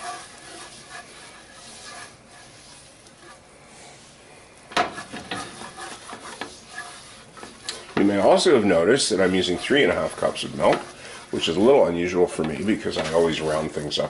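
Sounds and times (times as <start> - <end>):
whisk scraping a skillet: 0.0 - 14.0.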